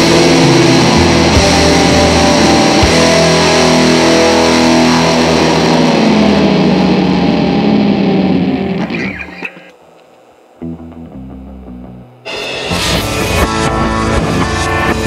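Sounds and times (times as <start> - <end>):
rock band sustained chord: 0.0 - 9.6, 10.6 - 15.0.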